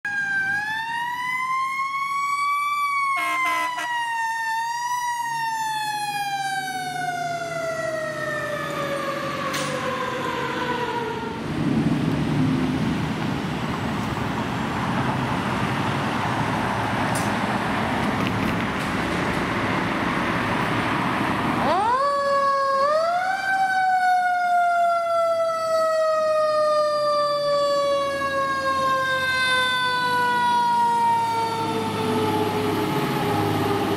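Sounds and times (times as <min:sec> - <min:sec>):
engine and road noise: 0:00.0 - 0:33.9.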